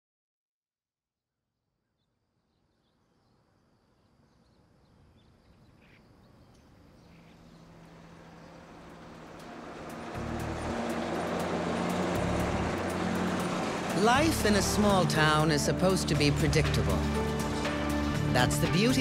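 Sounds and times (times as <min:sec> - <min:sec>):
faint bird chirps: 0:01.8 - 0:08.7
road noise: 0:04.6 - 0:19.0
vehicle engine: 0:06.6 - 0:19.0
bus engine: 0:06.7 - 0:19.0.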